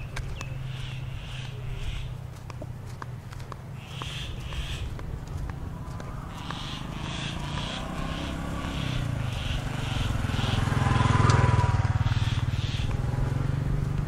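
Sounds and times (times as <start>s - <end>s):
vehicle engine passing by: 0.0s - 14.0s.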